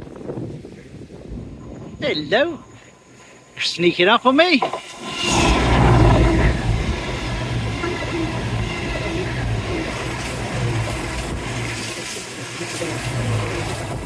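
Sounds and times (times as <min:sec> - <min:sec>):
train passing close by: 0:04.8 - 0:14.0.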